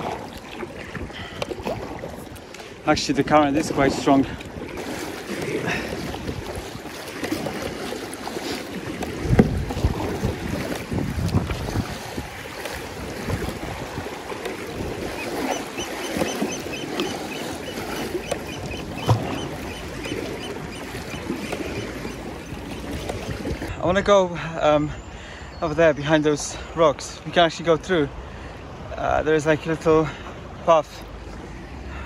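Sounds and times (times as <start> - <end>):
paddle splashing: 0.0 - 23.8
water lapping against hull: 0.0 - 23.8, 24.4 - 32.0
wind on microphone: 5.5 - 7.8, 8.8 - 23.7.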